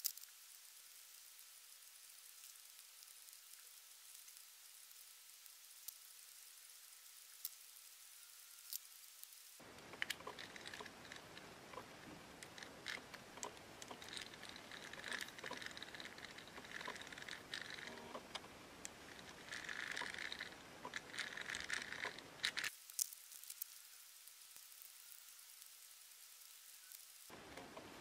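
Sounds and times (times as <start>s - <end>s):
sharp clicks: 9.7s - 23.1s
fishing reel gears scraping: 10.0s - 11.4s, 12.4s - 18.1s, 19.1s - 22.7s.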